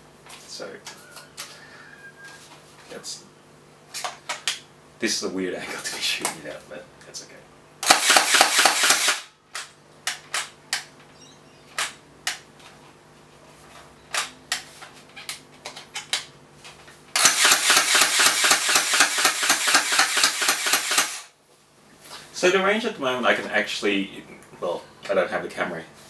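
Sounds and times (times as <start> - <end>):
gel blaster firing: 7.8 - 9.3, 17.2 - 21.3.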